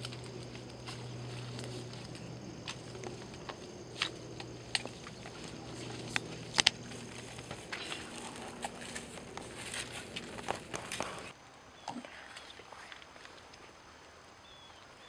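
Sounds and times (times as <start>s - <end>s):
sharp snaps and clicks: 0.0s - 9.5s
footsteps through dry grass: 0.0s - 11.3s
rustling in dry grass: 0.0s - 11.3s.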